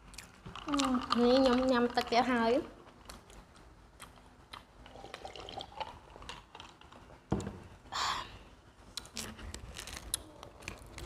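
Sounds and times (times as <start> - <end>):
person sipping cola: 4.8 - 6.8.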